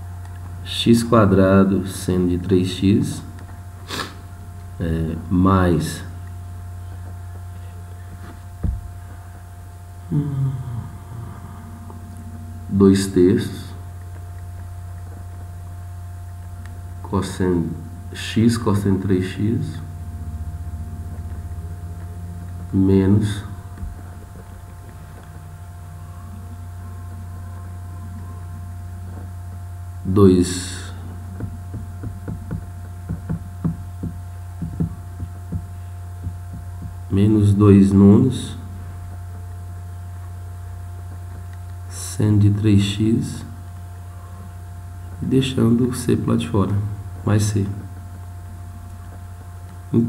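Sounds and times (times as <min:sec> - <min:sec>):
low electrical hum: 0:00.0 - 0:50.0
dull thump: 0:08.6 - 0:08.9, 0:31.4 - 0:37.0
murmured voice: 0:10.0 - 0:13.8, 0:25.8 - 0:29.2
thin steady tone: 0:10.1 - 0:14.9.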